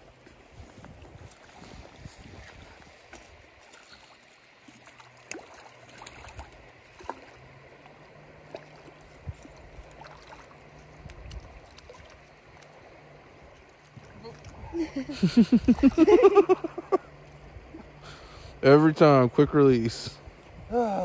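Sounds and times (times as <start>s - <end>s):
creek water running: 0.0s - 21.0s
small clicks and splashes: 0.2s - 15.0s.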